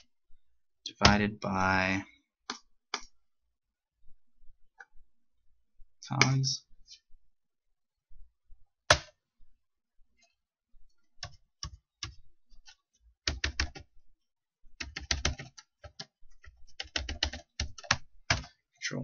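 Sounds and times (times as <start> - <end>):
computer keyboard keystrokes: 13.3 - 13.8, 14.8 - 18.5.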